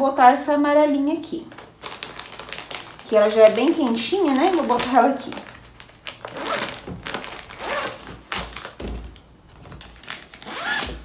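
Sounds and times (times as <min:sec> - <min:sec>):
clothes and packaging rustling: 0:01.4 - 0:11.0
dull thumps: 0:08.0 - 0:09.8.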